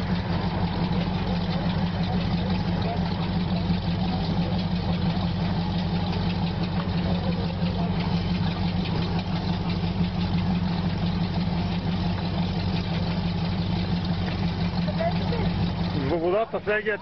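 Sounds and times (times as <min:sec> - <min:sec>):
propeller churning water: 0:00.0 - 0:17.0
speedboat engine humming: 0:00.0 - 0:17.0.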